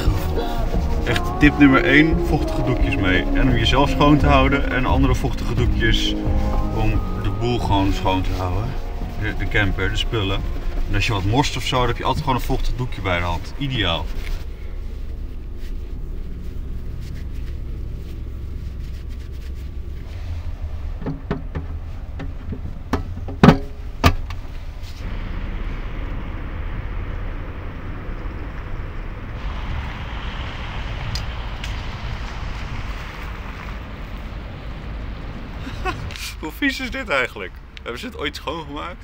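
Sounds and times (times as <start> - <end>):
steady low rumble: 0.0 - 39.0
scattered knocks: 21.0 - 24.4.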